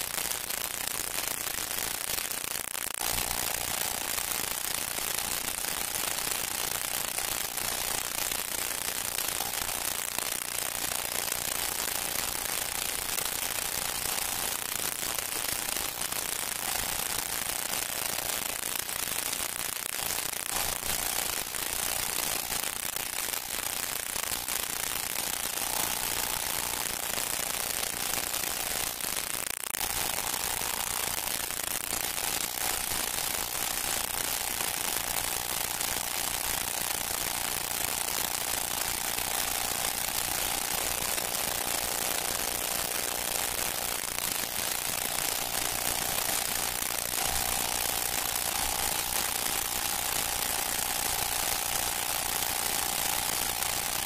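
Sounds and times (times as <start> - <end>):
hiss and crackle of old recording: 0.0 - 54.0.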